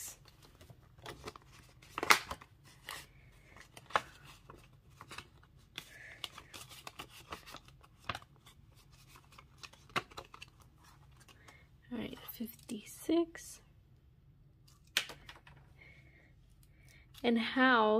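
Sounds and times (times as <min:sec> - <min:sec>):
banknotes rustling: 0:00.2 - 0:12.5.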